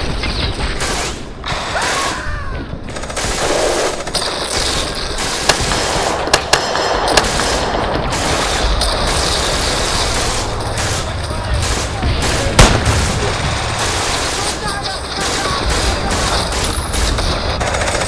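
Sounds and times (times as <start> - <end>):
machine-gun and rifle fire: 0.0 - 2.1, 2.9 - 18.0
sharp single gunshot cracks: 11.6 - 13.4.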